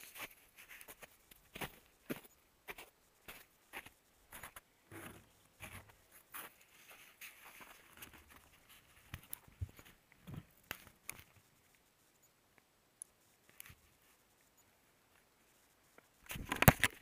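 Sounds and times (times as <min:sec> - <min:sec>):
camera housing rustling: 0:16.3 - 0:17.0.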